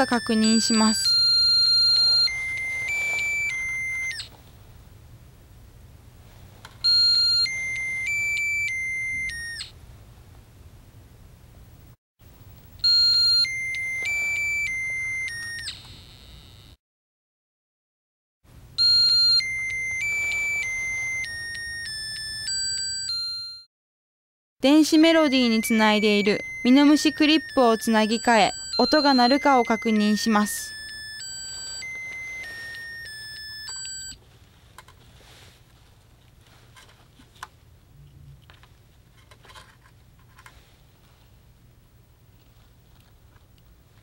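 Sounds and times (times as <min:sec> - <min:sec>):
electronic melody beeping: 0:00.0 - 0:04.3, 0:06.9 - 0:09.7, 0:12.8 - 0:16.7, 0:18.8 - 0:23.7, 0:24.7 - 0:34.2.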